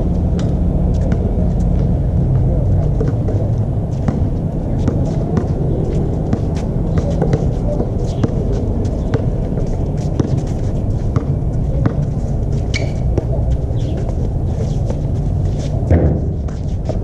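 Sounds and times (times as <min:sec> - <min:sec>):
shoes squeaking on court: 0:00.9 - 0:17.0
basketball bouncing: 0:03.0 - 0:13.4.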